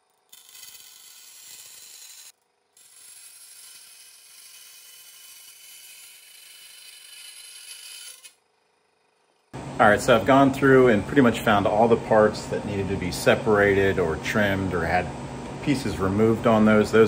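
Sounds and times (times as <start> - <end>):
bandsaw cutting metal sheet: 0.0 - 8.4.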